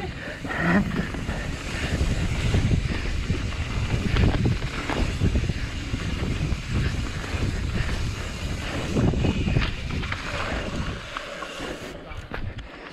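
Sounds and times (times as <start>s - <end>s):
wind buffeting the microphone: 0.0s - 12.8s
bike rolling on a dirt trail: 0.0s - 12.9s.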